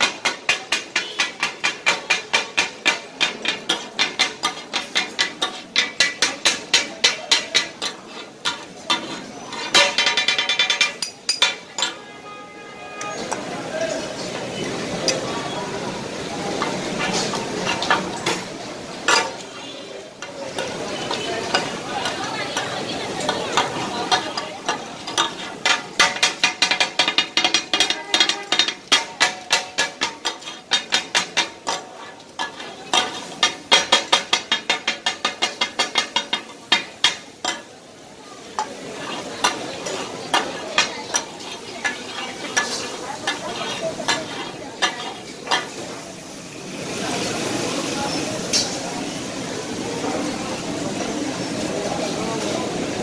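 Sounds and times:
metal blades chopping on griddle: 0.0 - 12.0, 16.6 - 37.8, 38.5 - 45.8
fat sizzling: 0.0 - 53.0.

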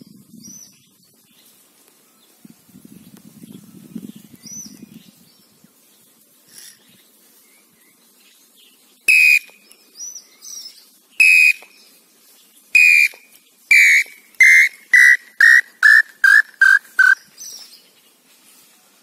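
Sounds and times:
tinamou whistled song: 9.1 - 9.5, 11.2 - 11.7, 12.8 - 17.2
higher bird calls: 9.1 - 9.8, 10.4 - 12.0, 12.7 - 17.7.

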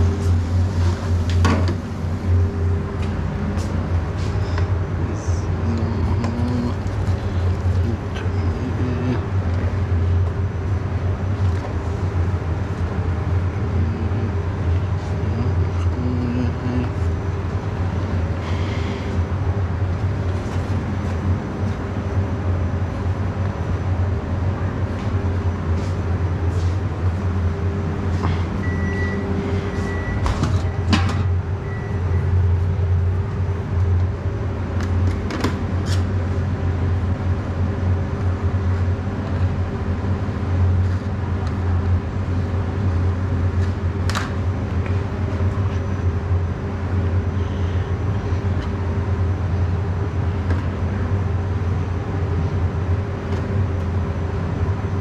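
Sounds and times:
low hum of kitchen machinery: 0.0 - 55.0.

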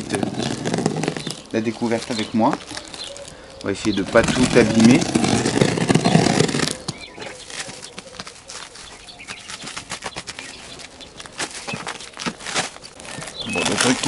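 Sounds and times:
packing tape being slit and peeled: 0.0 - 3.4, 4.0 - 14.0
plastic wrapping rustling: 0.0 - 14.0.

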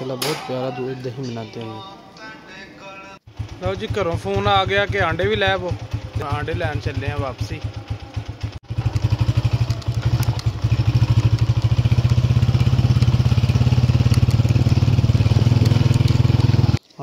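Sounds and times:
motorcycle engine running: 3.3 - 16.8.

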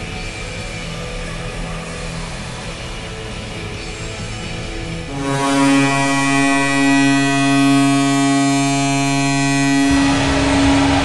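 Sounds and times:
low rumbling noise: 4.6 - 11.0
goal horn blast: 5.1 - 11.0.

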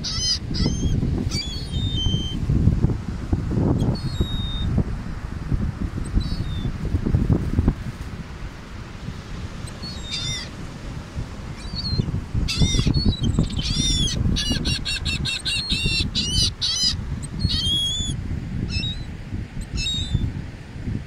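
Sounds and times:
gulls calling: 0.0 - 2.4, 9.7 - 10.6, 11.5 - 19.1
wind rumble on microphone: 0.0 - 21.0.

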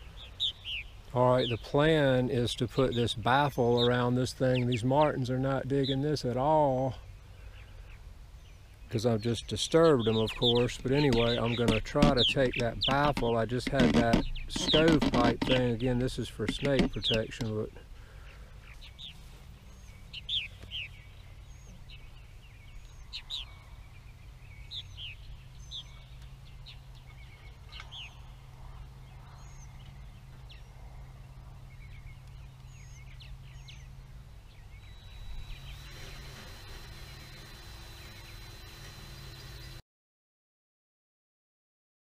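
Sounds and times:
birds chirping and calling: 0.0 - 39.8
low steady hum: 0.0 - 39.8
thin high tone: 34.8 - 39.8.

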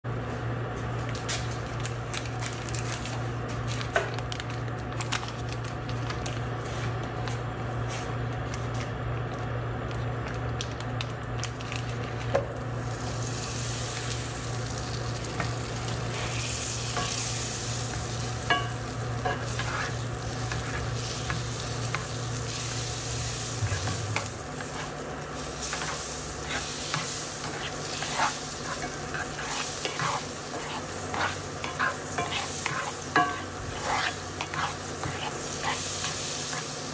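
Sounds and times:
steady low hum: 0.1 - 36.9
butter sizzling in skillet: 12.6 - 36.9
spatula scraping and tapping pan: 15.3 - 22.2, 23.6 - 36.7.

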